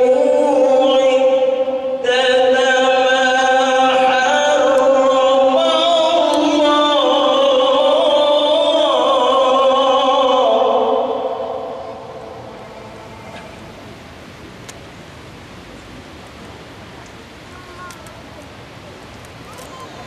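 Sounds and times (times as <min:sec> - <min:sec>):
man reciting melodically: 0:00.0 - 0:12.2.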